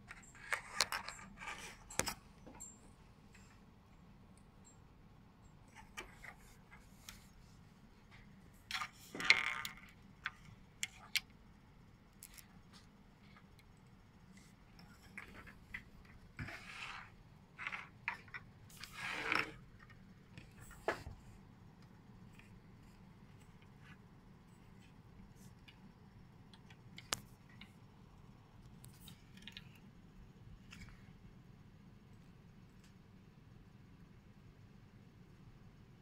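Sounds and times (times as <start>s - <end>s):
scrapes and rustles of parts: 14.3s - 21.5s.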